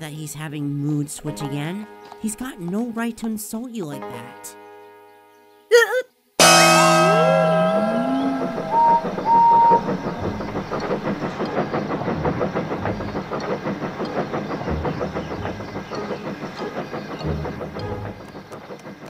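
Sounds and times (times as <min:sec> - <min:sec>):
train whistle toots: 0:06.4 - 0:11.2
steam train wheels clattering: 0:06.4 - 0:19.0
steam hissing: 0:06.6 - 0:19.0.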